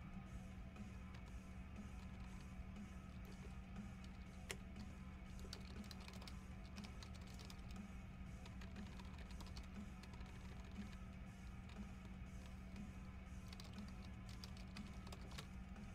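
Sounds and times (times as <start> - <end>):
faint background music: 0.0 - 15.9
keyboard typing clicks: 3.2 - 7.8, 8.4 - 11.8, 13.4 - 15.6.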